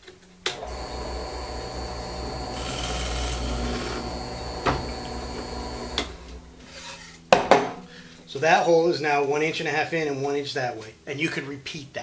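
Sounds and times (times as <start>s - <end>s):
drill press humming and whining: 0.4s - 6.6s
drill bit boring wood hiss: 0.6s - 6.3s.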